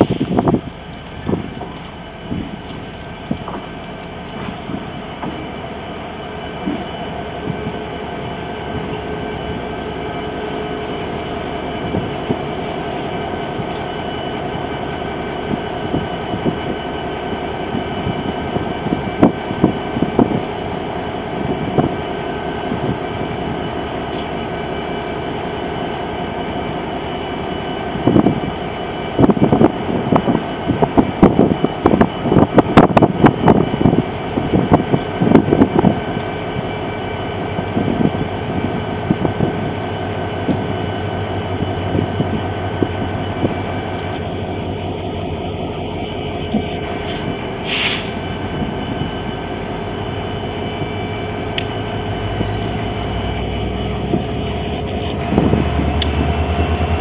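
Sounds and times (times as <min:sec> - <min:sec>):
wheels clacking over rail joints: 0:00.0 - 0:07.7
freight train rolling past: 0:00.0 - 0:57.0
train wheel squeal: 0:00.0 - 0:57.0.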